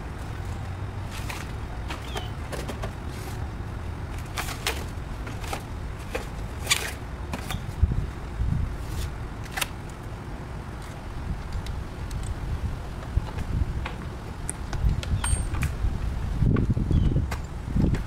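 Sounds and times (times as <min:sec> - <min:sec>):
wind rumbling on microphone: 0:04.9 - 0:09.4, 0:10.7 - 0:18.0.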